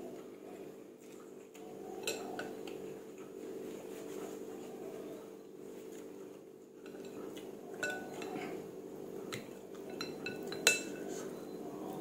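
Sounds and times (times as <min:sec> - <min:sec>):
metal spoon clinking ceramic bowl: 0:02.0 - 0:02.5, 0:07.8 - 0:08.4, 0:09.8 - 0:11.1.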